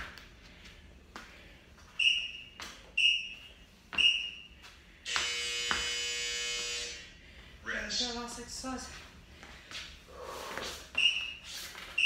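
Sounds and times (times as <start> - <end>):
long buzzing tone: 5.1 - 7.1.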